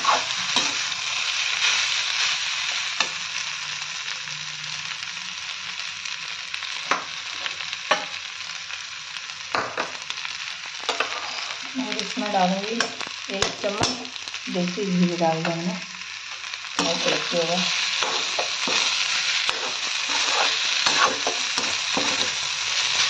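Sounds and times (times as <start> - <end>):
metal spatula scraping a pan: 0.0 - 1.0, 10.8 - 11.7, 16.8 - 23.0
rice sizzling in a pan: 0.0 - 23.0.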